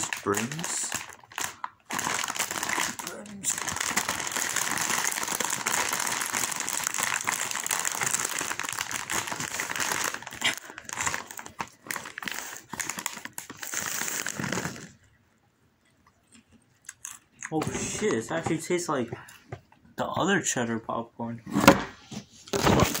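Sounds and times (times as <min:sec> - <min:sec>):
foil snack bag crinkling: 0:00.0 - 0:15.0.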